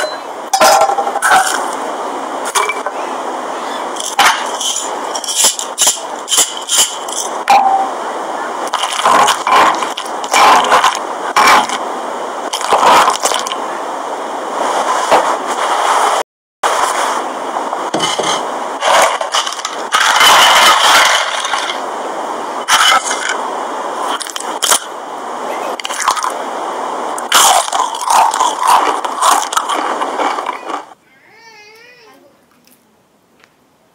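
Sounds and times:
sharp cracks: 4.0s - 7.9s, 8.6s - 11.8s, 12.4s - 13.6s, 27.2s - 31.0s
stone mortar scraping and crunching: 4.0s - 7.9s, 8.7s - 11.8s, 12.5s - 13.6s, 17.9s - 21.8s, 22.7s - 23.4s, 27.2s - 30.9s.

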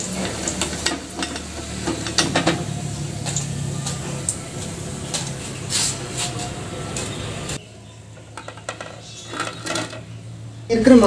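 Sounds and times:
wire strainer scraping metal pan: 0.0s - 7.1s, 8.3s - 10.1s
fritters sizzling in hot oil: 0.0s - 7.6s.

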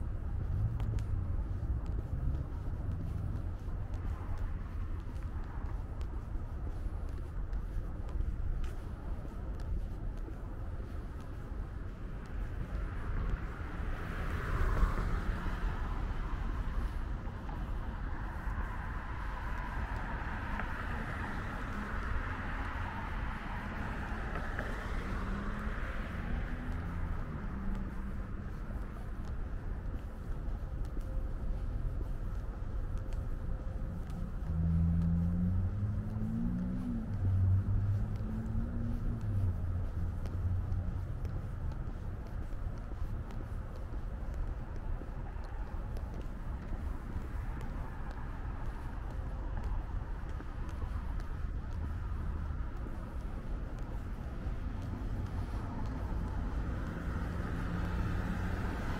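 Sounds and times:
cars passing: 0.0s - 58.9s
steady low traffic rumble: 0.0s - 58.9s
vehicle engine accelerating: 33.9s - 42.5s, 54.8s - 58.9s.

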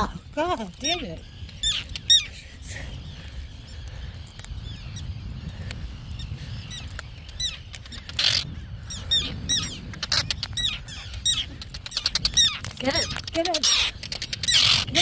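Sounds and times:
terns calling in alarm: 0.0s - 15.0s
wind rumble on microphone: 0.0s - 15.0s.

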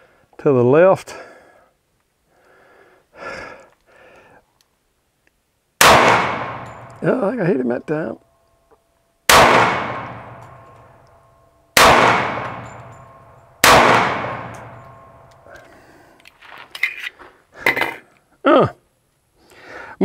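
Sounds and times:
pistol shots: 5.8s - 7.0s, 9.3s - 11.0s, 11.8s - 15.4s
gun handling clicks and knocks: 10.1s - 11.3s, 12.2s - 18.3s.

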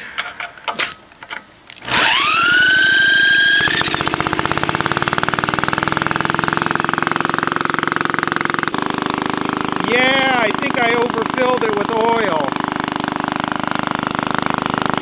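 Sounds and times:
cordless drill whining: 1.8s - 12.9s
small engine running: 1.8s - 15.0s.

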